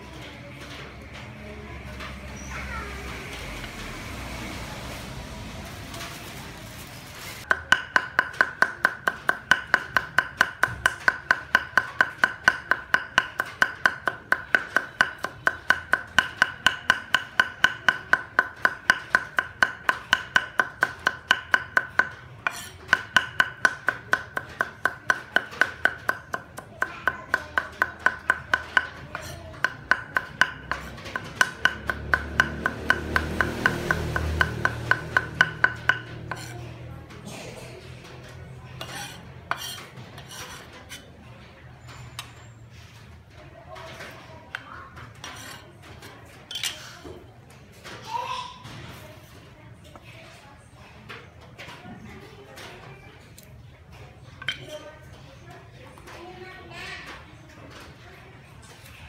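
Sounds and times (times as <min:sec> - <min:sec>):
knife mincing on wooden board: 0:07.5 - 0:26.7, 0:27.3 - 0:36.6, 0:38.8 - 0:41.1.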